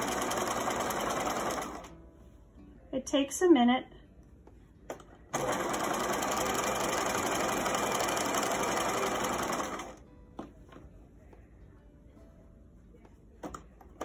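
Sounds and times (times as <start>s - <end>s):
sewing machine running: 0.0s - 1.9s, 5.3s - 10.0s.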